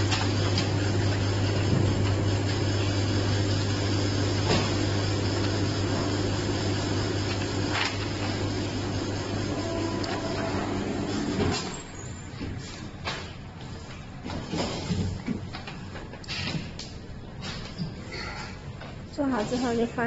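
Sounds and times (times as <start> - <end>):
machine electric hum and rushing: 0.0 - 11.9.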